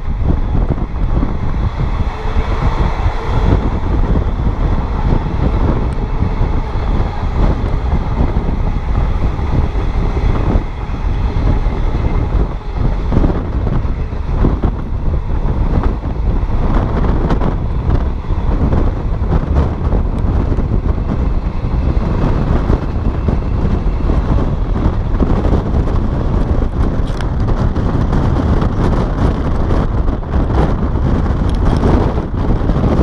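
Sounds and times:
train rumbling on rails: 0.0s - 33.0s
wind buffeting microphone: 0.0s - 33.0s.

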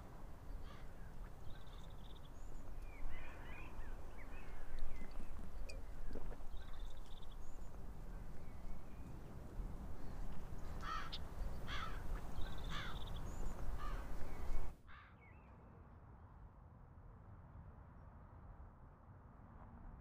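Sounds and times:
crows cawing: 0.6s - 1.0s, 10.8s - 13.0s, 13.8s - 14.1s, 14.9s - 15.2s.

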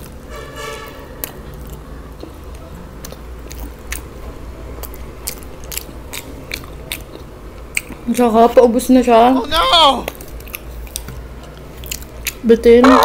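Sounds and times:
close chewing with mouth smacks: 0.0s - 0.2s, 0.8s - 8.7s, 10.0s - 12.8s.

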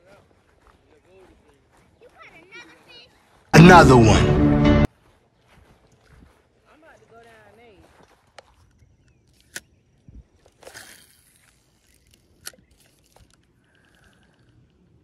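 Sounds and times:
fishing reel clicks: 10.5s - 14.3s.

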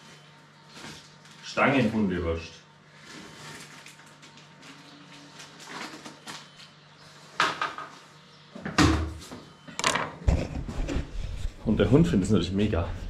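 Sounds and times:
sharp knocks and clatter: 9.8s - 11.1s.

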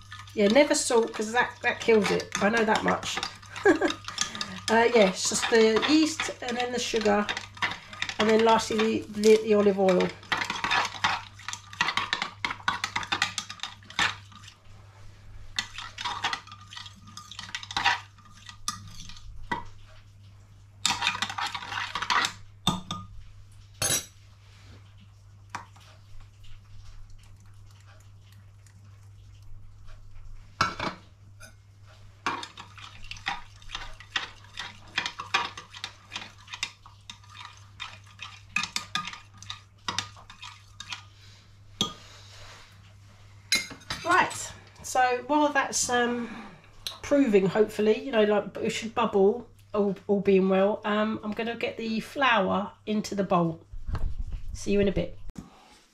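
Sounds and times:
low steady hum: 0.0s - 55.7s.

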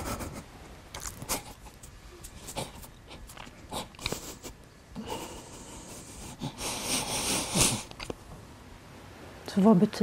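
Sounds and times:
sniffling: 1.0s - 8.1s
man crying quietly: 2.4s - 8.0s.

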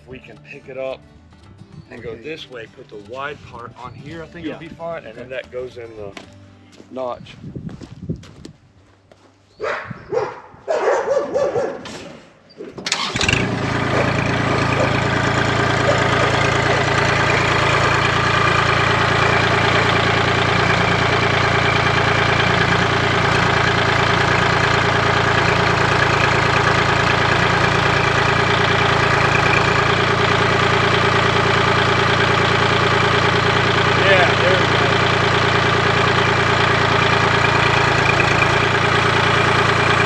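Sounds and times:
tractor diesel engine running: 0.0s - 6.4s, 12.8s - 40.0s.

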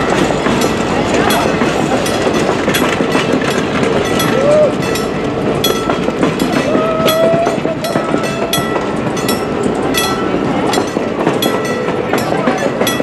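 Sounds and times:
train cars rumbling past: 0.0s - 13.0s
wheels clicking over rail joints: 0.0s - 13.0s.

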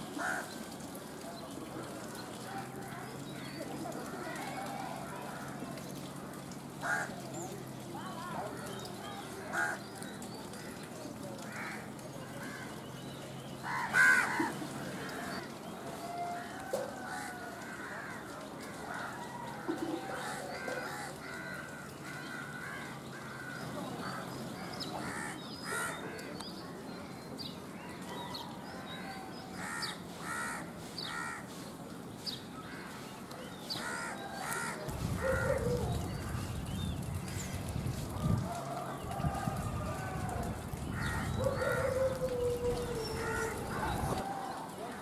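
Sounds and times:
birds calling: 32.2s - 45.0s.

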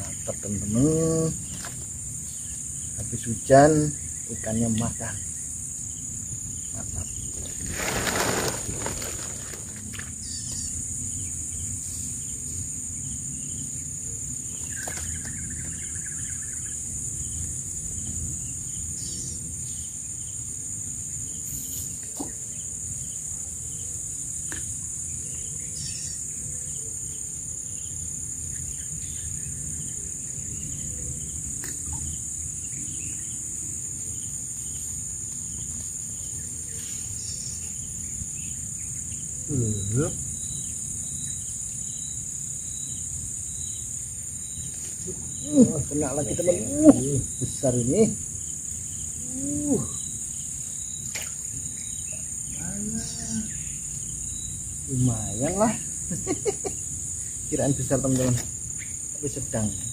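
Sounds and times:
insect chorus: 0.0s - 59.9s
short rustle: 7.2s - 10.2s.

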